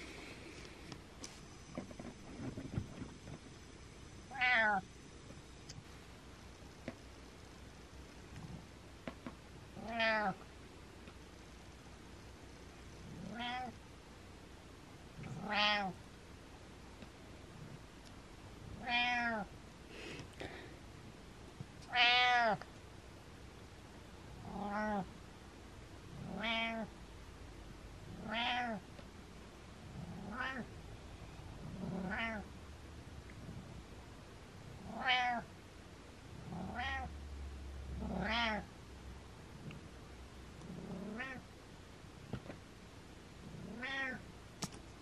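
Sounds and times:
cat meowing: 0:04.3 - 0:04.8, 0:09.8 - 0:10.4, 0:13.3 - 0:13.7, 0:15.4 - 0:16.0, 0:18.8 - 0:19.5, 0:21.9 - 0:22.6, 0:26.4 - 0:26.9, 0:28.2 - 0:28.8, 0:32.0 - 0:32.4, 0:34.9 - 0:35.5, 0:36.7 - 0:37.1, 0:38.1 - 0:38.7, 0:43.7 - 0:44.2.

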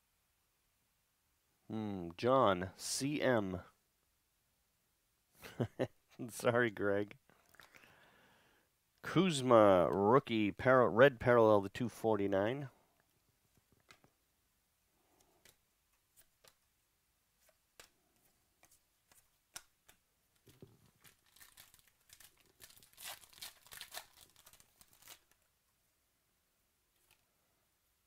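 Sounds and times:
cards clicking and tapping: 0:15.2 - 0:16.7, 0:17.4 - 0:21.1
foil wrapper crinkling and tearing: 0:20.6 - 0:25.4.

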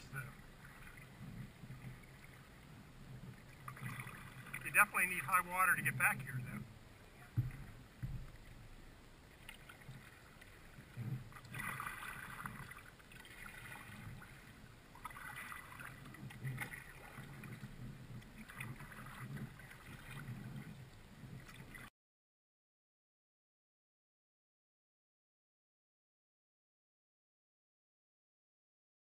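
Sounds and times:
water along hull: 0:00.0 - 0:21.9
paddle splashing in water: 0:00.2 - 0:21.9.

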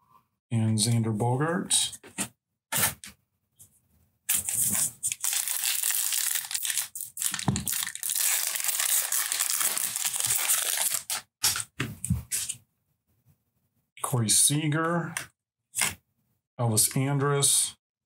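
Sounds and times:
foil wrapper tearing and crinkling: 0:04.3 - 0:11.7.

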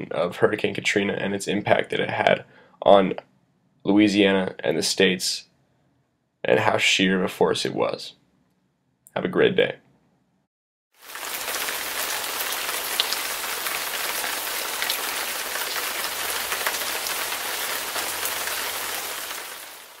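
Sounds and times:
steady rain hiss: 0:11.0 - 0:20.0
rain drop ticks: 0:11.3 - 0:19.4.

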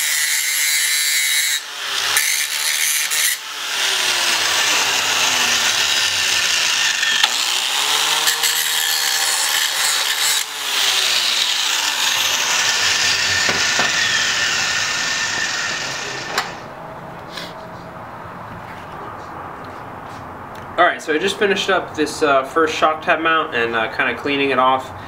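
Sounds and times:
angle grinder grinding steel: 0:00.0 - 0:16.7.

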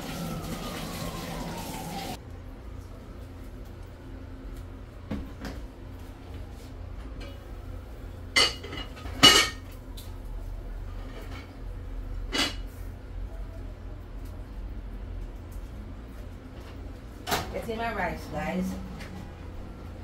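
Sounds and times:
metal pots and lids clanking: 0:08.4 - 0:09.6.

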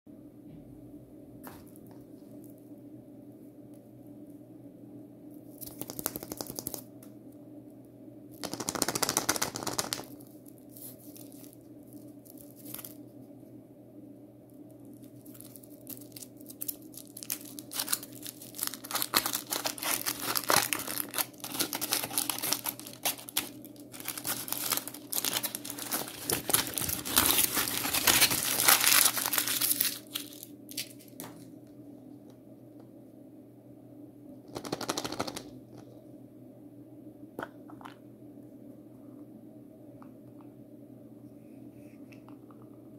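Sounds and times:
foil wrapper crinkling and tearing: 0:08.4 - 0:13.0, 0:14.9 - 0:31.2.

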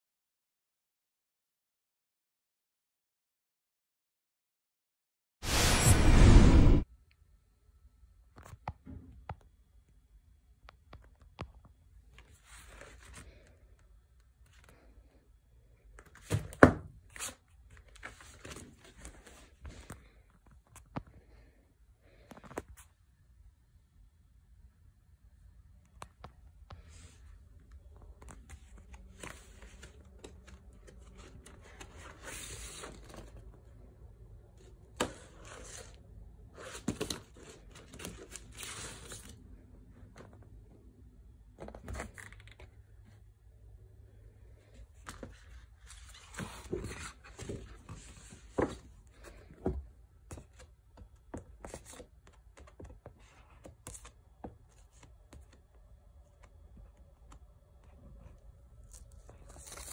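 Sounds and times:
record sleeves rustling: 0:12.1 - 0:13.5, 0:26.8 - 0:33.7, 0:34.6 - 0:39.4, 0:44.7 - 0:49.5, 0:58.8 - 0:59.9.

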